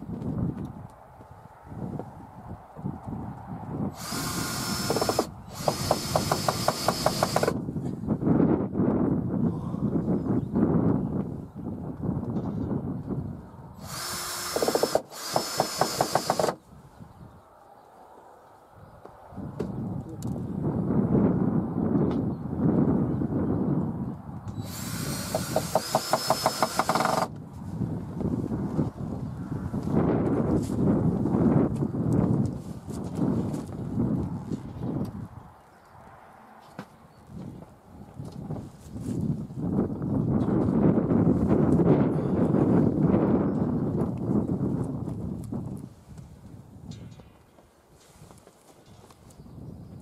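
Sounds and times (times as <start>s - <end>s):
cordless drill whining: 4.0s - 7.6s, 13.8s - 16.6s, 24.6s - 27.4s
drill clutch clicking: 4.0s - 7.6s, 13.8s - 16.6s, 24.8s - 27.3s.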